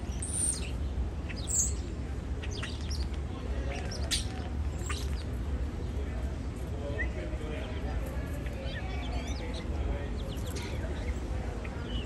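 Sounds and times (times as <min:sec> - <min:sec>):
starling singing clicks and whistles: 0:00.0 - 0:05.4.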